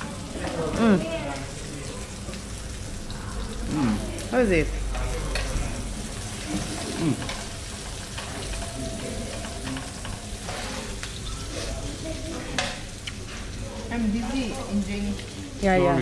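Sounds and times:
food sizzling on a grill: 0.0 - 16.0.

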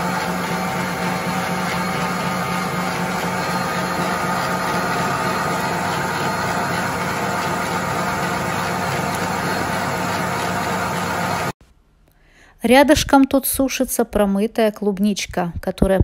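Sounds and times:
stand mixer motor hum: 0.0 - 11.6
whisk whirring in steel bowl: 0.0 - 11.6.

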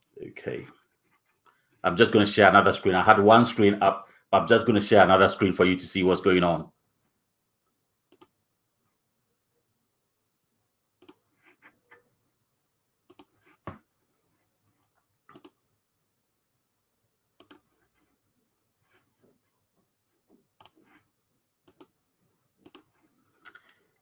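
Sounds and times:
computer mouse clicking: 8.1 - 8.4, 11.0 - 12.0, 13.1 - 13.6, 15.3 - 15.6, 17.4 - 17.7, 20.6 - 21.0, 21.6 - 22.0, 22.6 - 23.8.

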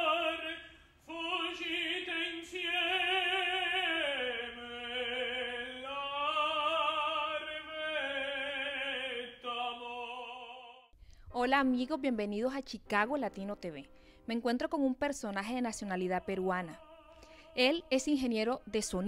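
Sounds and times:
operatic tenor singing: 0.0 - 10.9, 15.6 - 19.0.

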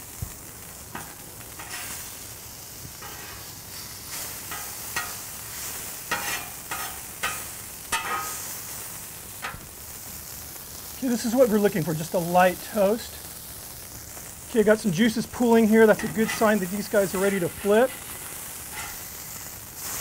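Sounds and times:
frying sizzle: 0.0 - 20.0
metal spatula scraping griddle: 0.9 - 2.2, 2.9 - 8.8, 14.8 - 20.0.

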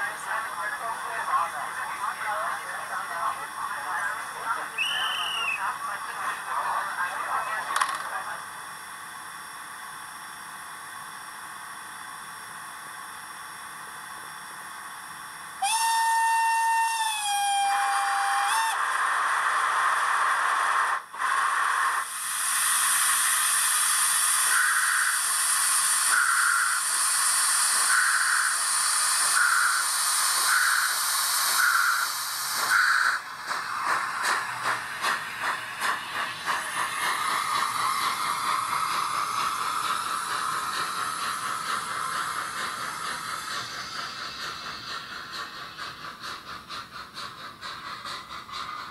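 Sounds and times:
loud steam hissing: 0.0 - 7.4, 15.6 - 48.9
steam locomotive chuffs: 0.0 - 48.9
steam whistle blast: 15.6 - 18.8.

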